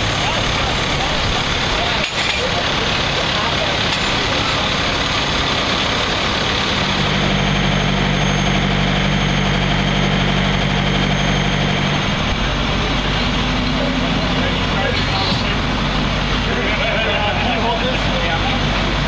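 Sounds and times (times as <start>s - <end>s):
deep engine drone: 0.0s - 19.0s
diesel engines idling: 0.0s - 19.0s.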